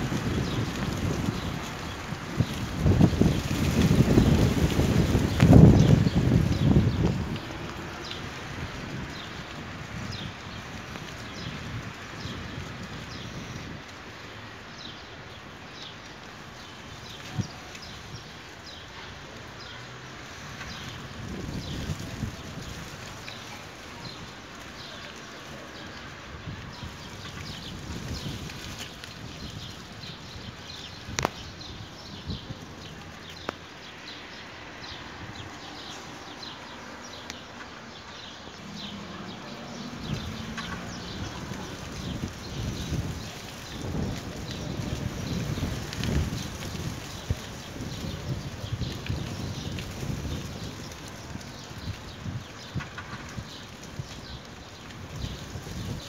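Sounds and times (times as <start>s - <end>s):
leaves rustling in wind: 0.0s - 56.0s
wind rumble on microphone: 0.0s - 56.0s.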